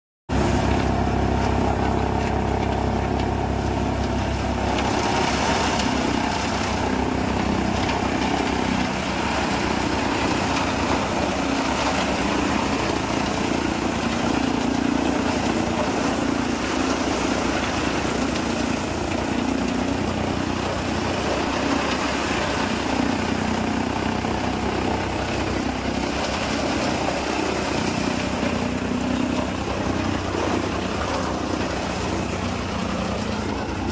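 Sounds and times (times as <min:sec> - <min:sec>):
chaff cutter machine drone: 0:00.3 - 0:33.9.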